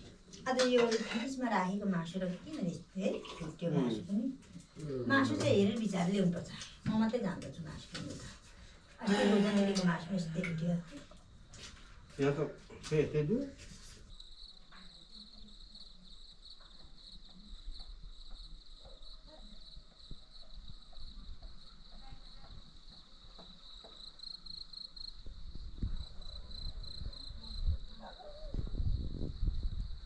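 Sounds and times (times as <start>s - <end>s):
insects chirring: 8.7s - 30.0s.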